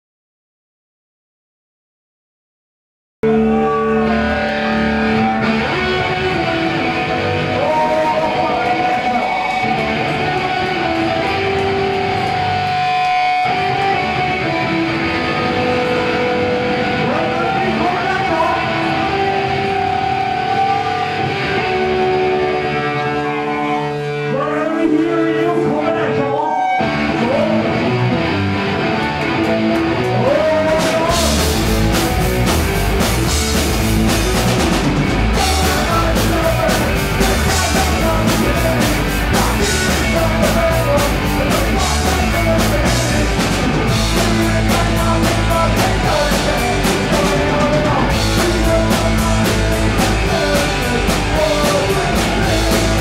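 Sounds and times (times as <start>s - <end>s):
bass guitar: 3.2s - 53.0s
distorted electric guitars: 3.2s - 53.0s
drum kit: 3.6s - 22.4s, 28.8s - 53.0s.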